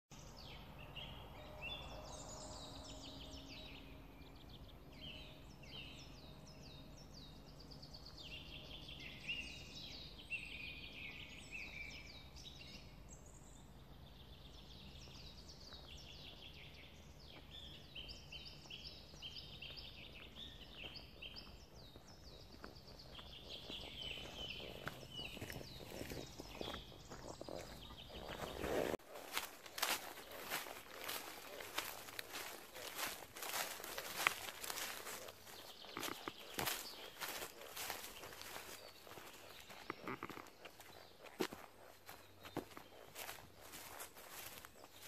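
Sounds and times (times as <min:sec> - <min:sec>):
songbirds chirping and trilling: 0:00.1 - 0:45.0
footsteps on gravel: 0:19.1 - 0:45.0.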